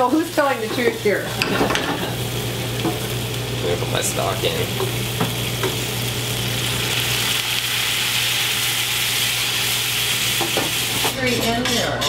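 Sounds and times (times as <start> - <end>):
stock sizzling in frying pan: 0.0 - 11.3.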